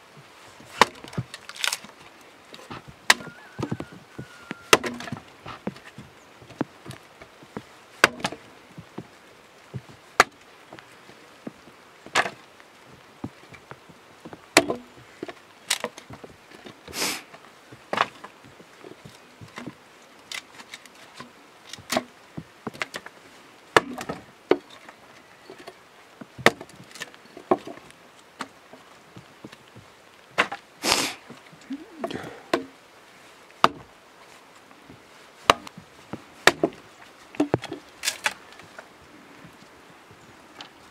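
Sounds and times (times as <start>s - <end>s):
wood splitting: 0.6s - 5.9s, 8.0s - 8.4s, 9.8s - 10.5s, 12.0s - 12.4s, 14.3s - 23.1s, 23.7s - 24.9s, 25.6s - 28.6s, 30.4s - 32.8s, 33.6s - 33.9s, 35.4s - 38.8s
axe chopping wood: 0.8s - 1.8s, 2.7s - 5.7s, 8.0s - 8.4s, 10.2s - 10.4s, 14.6s - 14.9s, 23.8s - 24.6s, 26.4s - 26.7s, 30.4s - 30.6s, 33.6s - 33.9s, 35.4s - 35.7s, 36.4s - 36.8s.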